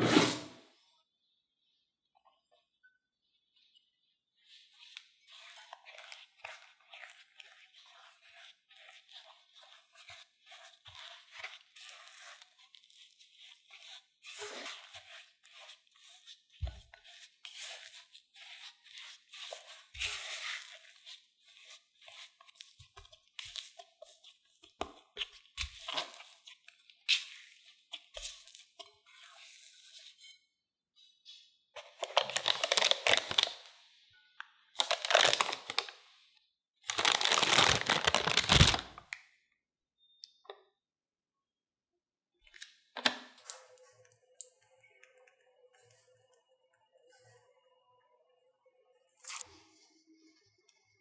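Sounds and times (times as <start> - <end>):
spatula scraping in bowl: 0.0 - 0.6, 4.8 - 30.4.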